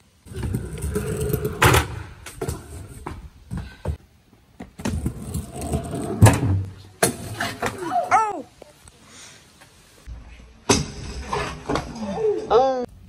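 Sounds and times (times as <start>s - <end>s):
scooter wheels rolling on pavement: 0.1s - 8.8s.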